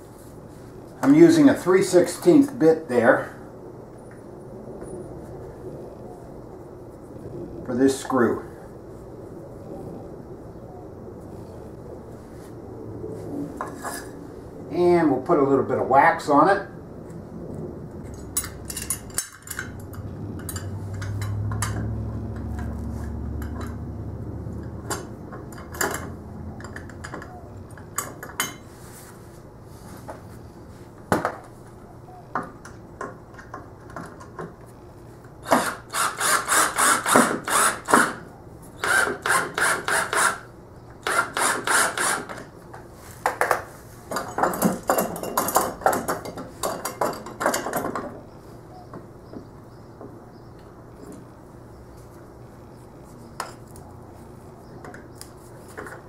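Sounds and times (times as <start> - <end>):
cordless drill motor hum: 35.4 - 38.2, 38.8 - 40.4.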